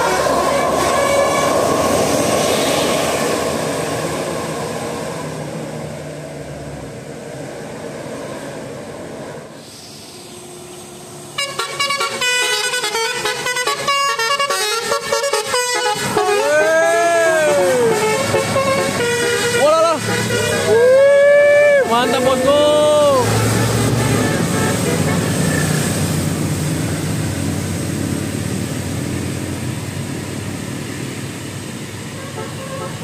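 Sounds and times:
bus multi-tone horn melody: 0.0s - 2.1s, 11.3s - 20.8s, 21.8s - 25.6s, 32.1s - 33.0s
bus passing on wet road: 0.0s - 33.0s.

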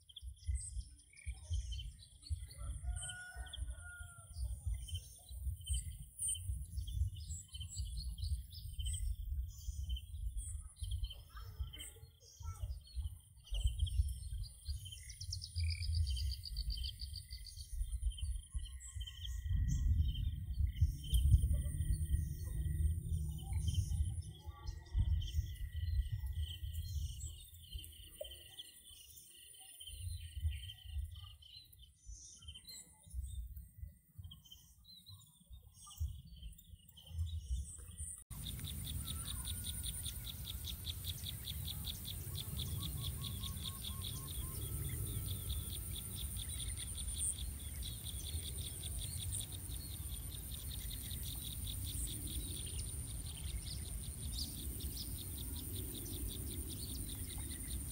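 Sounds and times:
birds chirping: 0.0s - 57.9s
low rumbling on microphone: 19.2s - 27.5s
insects trilling: 38.3s - 57.9s.

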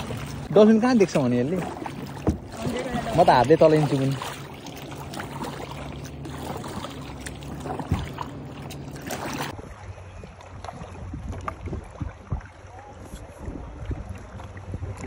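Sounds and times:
paddle strokes splashing water: 0.0s - 15.0s
water lapping: 0.0s - 15.0s
wind rumbling on microphone: 5.2s - 15.0s.

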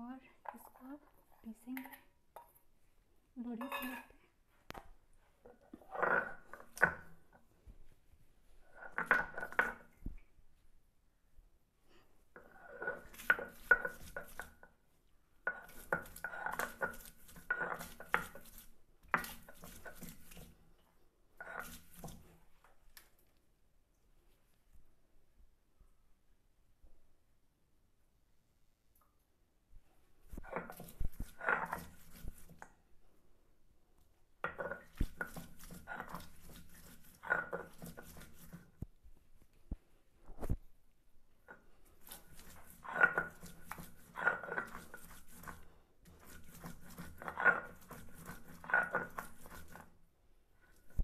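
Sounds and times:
stone grinding on stone slab: 5.8s - 7.0s, 12.4s - 14.7s, 15.5s - 20.5s, 30.4s - 32.6s, 34.4s - 38.6s, 42.1s - 49.9s.

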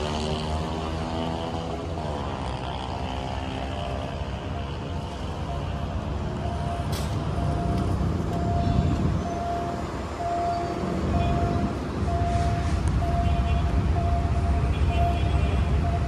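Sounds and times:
road traffic rumble: 0.0s - 16.0s
level crossing signal beeping: 5.4s - 16.0s.

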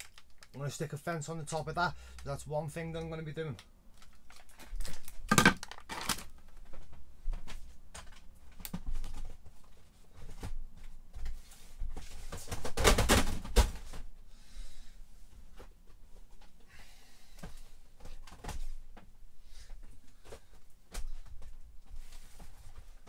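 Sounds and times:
plastic rustling and crinkling: 0.0s - 1.0s, 3.9s - 14.1s.

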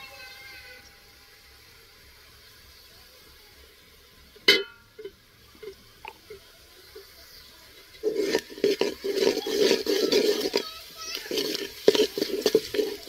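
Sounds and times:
frying sizzle: 0.0s - 13.0s
ladle clinking on metal pot: 4.5s - 5.8s, 11.2s - 13.0s
ladle scraping through onions: 5.6s - 13.0s.

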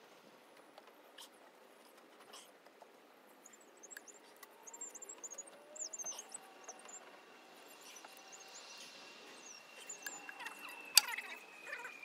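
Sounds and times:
small birds chirping: 1.1s - 12.0s
faint steady high tone: 3.4s - 12.0s.

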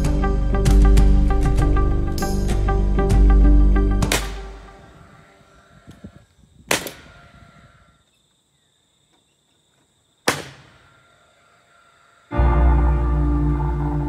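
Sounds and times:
nail gun firing: 4.0s - 4.5s, 6.7s - 7.1s, 10.3s - 10.8s.

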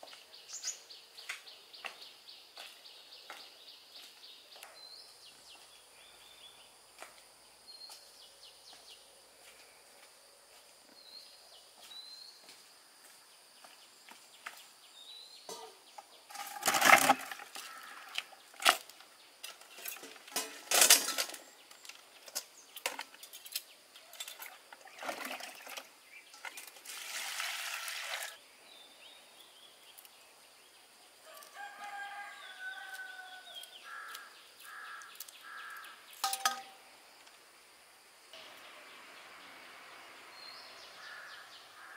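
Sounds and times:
small birds chirping: 0.0s - 7.0s, 28.3s - 31.5s, 32.2s - 37.3s.

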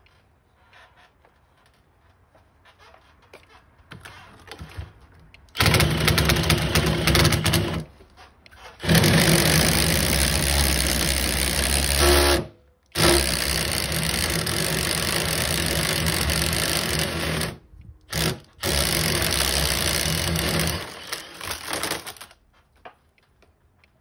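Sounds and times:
cordless drill boring into brick: 5.6s - 7.9s, 8.8s - 22.3s.

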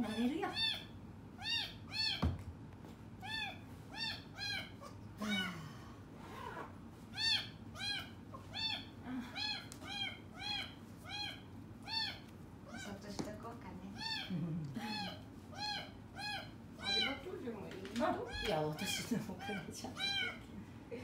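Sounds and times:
kitten meowing: 0.0s - 2.4s, 3.2s - 5.5s, 6.5s - 12.9s, 14.0s - 17.2s, 19.4s - 20.4s.

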